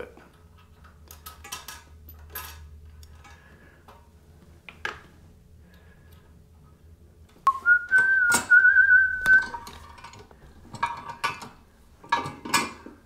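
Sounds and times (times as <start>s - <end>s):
small hardware clinking and rustling: 0.1s - 4.1s, 9.4s - 13.0s
person whistling a held note: 7.5s - 9.5s.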